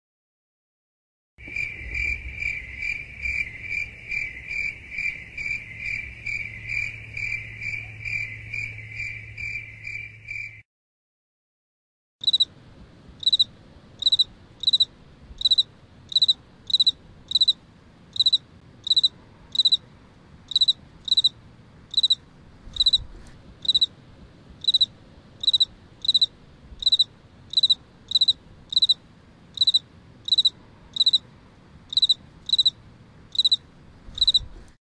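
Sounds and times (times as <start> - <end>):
faint background hiss: 1.4 - 9.8
cricket chirping: 1.4 - 10.6, 12.2 - 12.6, 13.2 - 19.9, 20.5 - 23.0, 23.6 - 24.0, 24.6 - 31.3, 31.9 - 34.6.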